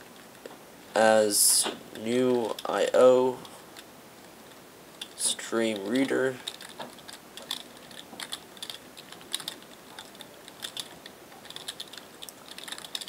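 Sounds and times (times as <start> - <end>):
keyboard typing: 5.0 - 13.0.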